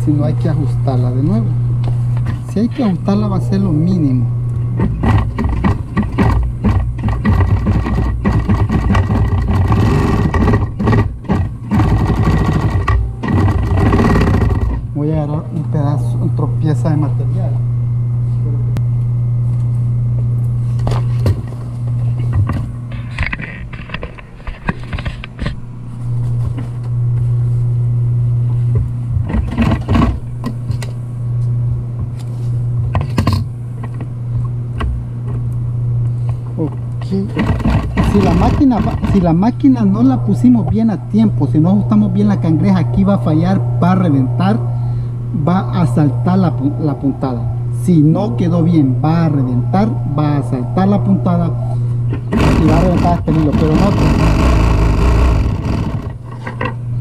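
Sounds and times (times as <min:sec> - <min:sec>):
sewing machine motor hum: 0:02.2 - 0:14.9, 0:37.0 - 0:44.3, 0:52.1 - 0:56.4
sewing machine needle clatter: 0:05.0 - 0:14.8.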